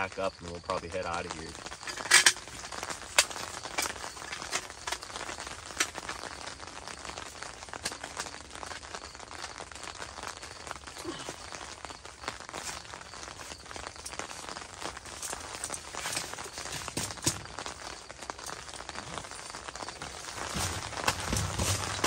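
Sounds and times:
rain pattering on tent fabric: 0.0s - 22.0s
metal camp table clattering: 1.6s - 6.1s, 20.5s - 22.0s.

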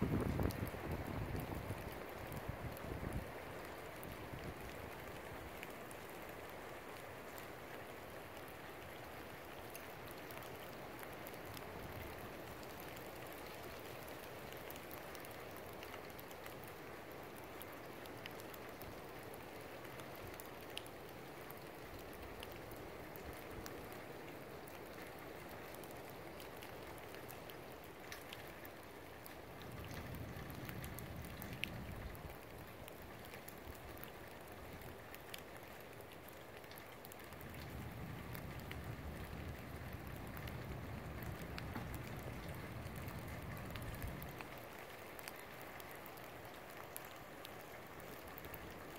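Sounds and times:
wind gust on microphone: 0.0s - 1.7s
strong wind: 0.0s - 1.8s
rain: 0.0s - 48.9s.

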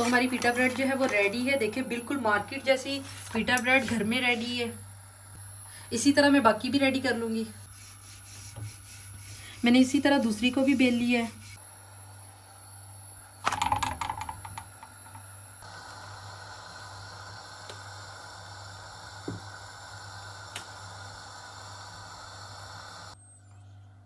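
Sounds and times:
gas burner hiss: 0.0s - 13.6s, 14.4s - 23.2s.

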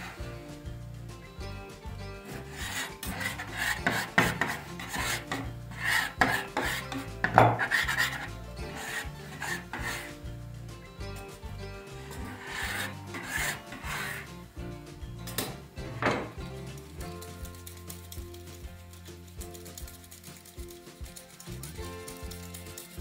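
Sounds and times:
metal scraper scraping wooden board: 0.0s - 0.3s, 2.2s - 10.4s, 11.8s - 14.5s.

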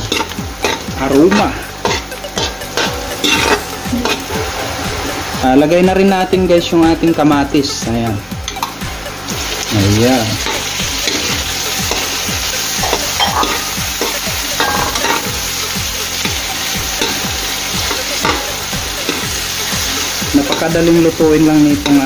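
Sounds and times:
metal ladle scraping pan: 0.0s - 5.2s, 12.8s - 16.3s
tomatoes sizzling in hot oil: 0.0s - 22.0s.

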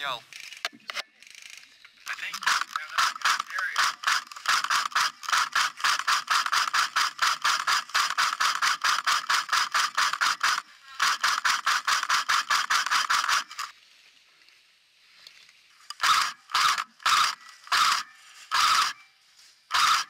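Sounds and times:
airsoft rifle automatic fire: 2.2s - 13.7s, 16.0s - 19.0s, 19.7s - 20.0s.

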